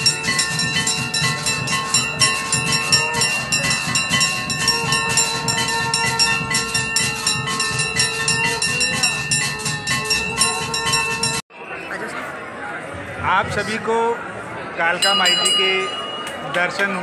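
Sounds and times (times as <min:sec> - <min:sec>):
bells clanging rapidly: 0:00.0 - 0:11.4, 0:14.9 - 0:17.0.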